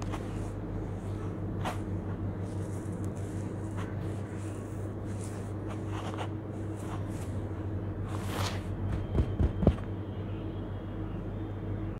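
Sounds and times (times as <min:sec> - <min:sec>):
palms patting surface: 0:00.0 - 0:09.9
steady low hum: 0:00.0 - 0:11.9
hands sifting gritty mix: 0:00.1 - 0:07.5.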